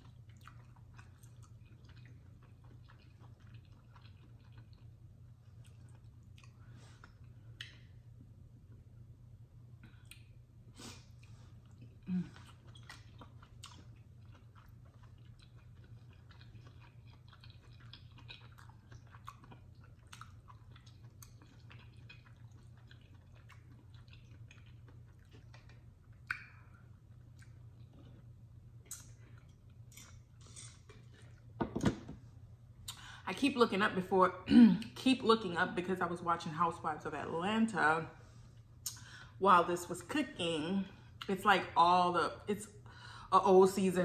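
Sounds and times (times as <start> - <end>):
mouth chewing wet clicks: 0.0 - 7.9, 11.2 - 28.0, 28.8 - 30.2.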